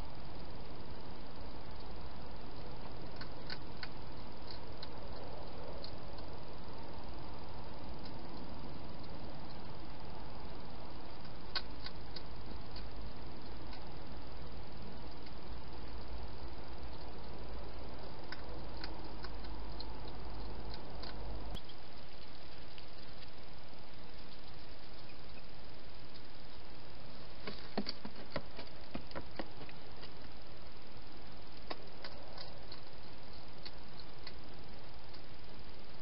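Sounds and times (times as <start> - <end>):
low hum: 0.0 - 36.0
microphone hiss: 0.0 - 36.0
hedgehog crunching food: 14.8 - 26.6, 31.4 - 35.3.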